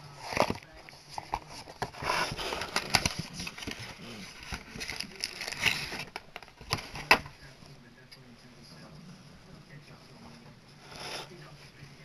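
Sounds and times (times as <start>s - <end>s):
cardboard box rustling and scraping: 0.2s - 7.1s.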